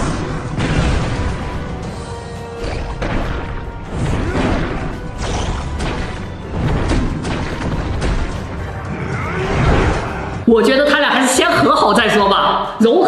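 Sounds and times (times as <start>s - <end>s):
punch and crash sound effects: 0.0s - 1.8s, 2.6s - 8.6s
dramatic fight music: 0.0s - 13.0s.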